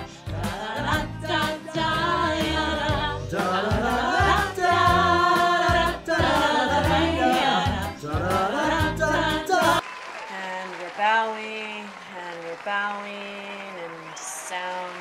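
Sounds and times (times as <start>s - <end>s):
piano accompaniment: 0.0s - 9.8s
group scat singing: 0.4s - 9.8s.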